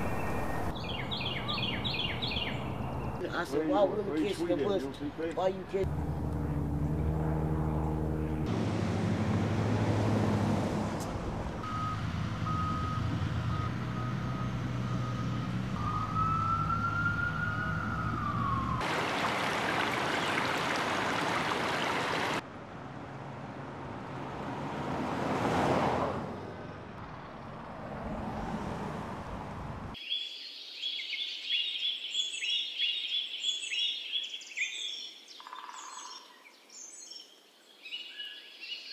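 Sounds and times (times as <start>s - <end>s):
bird chirps: 0.0s - 3.2s, 30.0s - 38.9s
traffic rushing: 0.0s - 30.0s
vehicle engines humming: 0.0s - 30.0s
vehicle passing: 4.4s - 30.0s.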